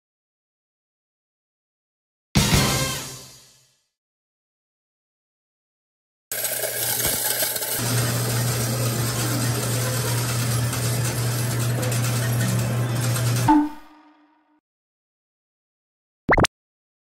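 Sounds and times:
tokens rattling: 0:06.3 - 0:07.8
counting machine motor hum: 0:06.3 - 0:13.5
short beep: 0:13.5 - 0:14.3.

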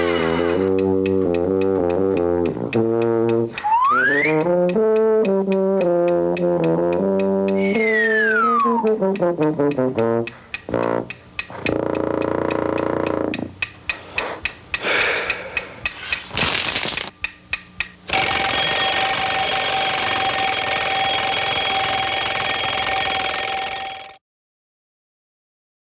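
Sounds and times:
mechanical timer ticking: 0:00.5 - 0:22.9
alarm bell ringing: 0:18.1 - 0:24.2.

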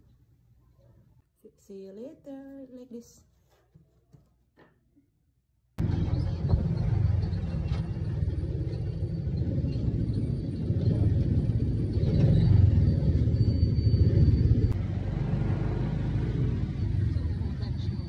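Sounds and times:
vehicle rumbling on road: 0:05.8 - 0:18.0.

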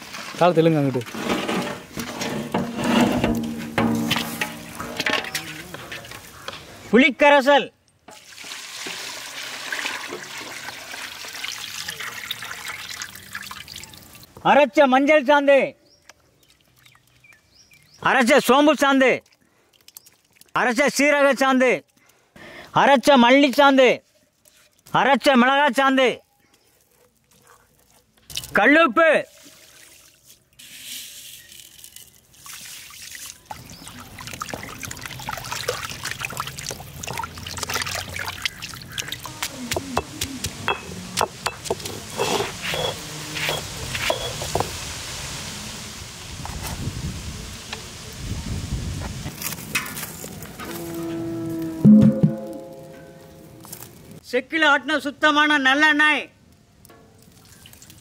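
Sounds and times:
liquid sloshing in metal pot: 0:00.0 - 0:06.4
liquid splashing: 0:08.2 - 0:14.3, 0:19.2 - 0:20.6, 0:29.2 - 0:30.8, 0:31.8 - 0:40.7, 0:57.0 - 0:58.0.

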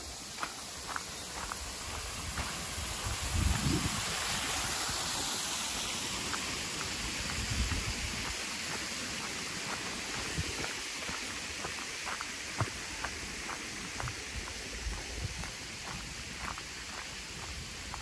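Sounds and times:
steady rushing noise: 0:00.0 - 0:18.0.

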